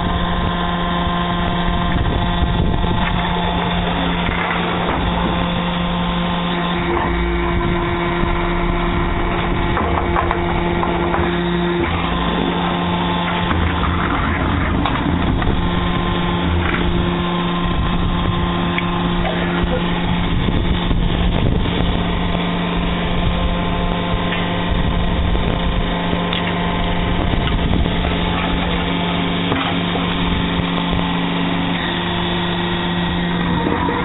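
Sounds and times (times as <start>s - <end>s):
machine motor humming: 0.0s - 34.0s
machine knocks and clatter: 9.3s - 12.2s.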